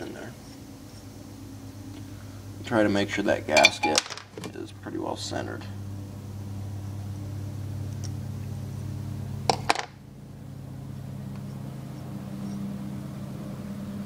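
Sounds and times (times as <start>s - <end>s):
steady low hum: 0.0s - 14.0s
metal parts handled on workbench: 3.6s - 4.5s.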